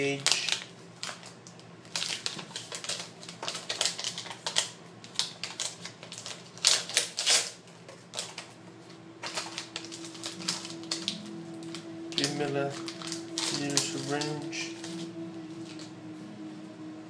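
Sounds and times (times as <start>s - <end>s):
packaging tearing and crinkling: 0.1s - 8.5s, 12.2s - 15.2s.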